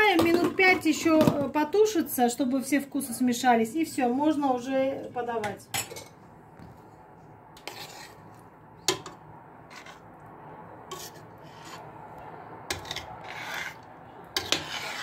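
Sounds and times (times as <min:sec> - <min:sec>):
metal spoon scraping pot: 0:07.6 - 0:10.1, 0:10.9 - 0:12.0, 0:12.7 - 0:15.0.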